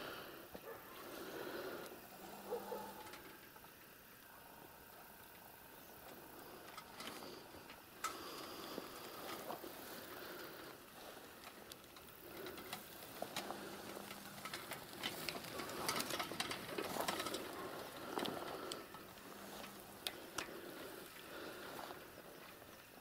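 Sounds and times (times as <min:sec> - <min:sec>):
grass brushing: 0:08.2 - 0:22.7
bicycle and metal bucket rattling: 0:08.9 - 0:22.8.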